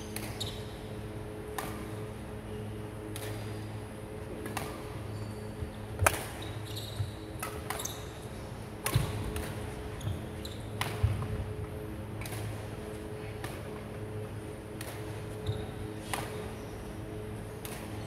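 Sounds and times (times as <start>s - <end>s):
low hum: 0.0s - 18.0s
racket hitting shuttlecock: 1.5s - 2.0s, 6.0s - 6.4s, 8.8s - 9.8s, 10.7s - 11.3s, 12.2s - 12.6s, 14.7s - 16.4s, 17.6s - 17.9s
shoes squeaking on wooden court: 5.1s - 5.7s, 6.4s - 8.2s, 9.9s - 10.8s, 15.4s - 16.0s.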